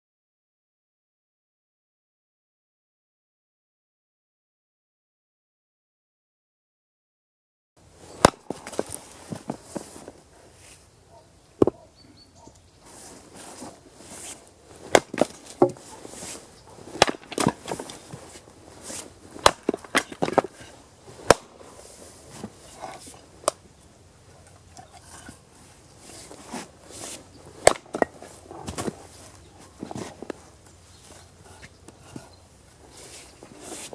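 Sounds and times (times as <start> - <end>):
axe splitting firewood: 8.1 - 10.2, 13.0 - 23.6, 24.6 - 33.9
wood pieces knocking and rustling: 8.1 - 10.2, 14.8 - 23.6, 26.1 - 31.2.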